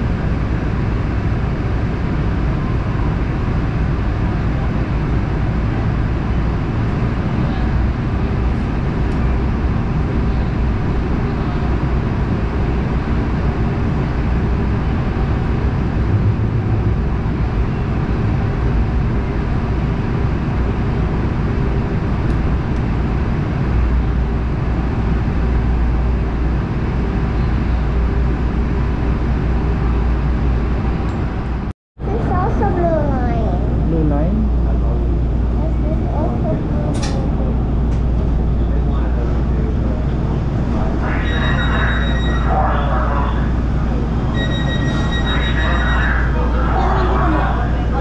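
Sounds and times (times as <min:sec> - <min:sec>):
train wheels rumbling on track: 0:00.0 - 0:42.2
faint hum: 0:07.4 - 0:22.9, 0:32.0 - 0:48.0.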